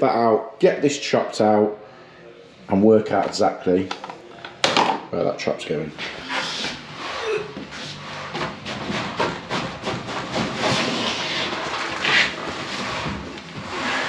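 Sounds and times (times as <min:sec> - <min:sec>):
shower tray scraping on concrete: 0:06.0 - 0:14.0.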